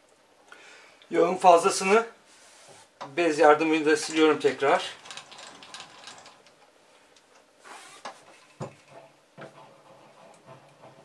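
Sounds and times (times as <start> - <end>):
metal clicks and knocks: 4.0 - 6.6
short scraping hiss: 7.6 - 8.1.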